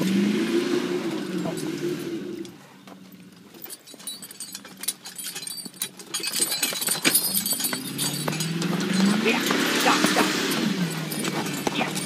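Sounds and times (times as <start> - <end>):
harness buckles jingling: 1.0 - 12.0
hooves on icy snow: 5.6 - 12.0.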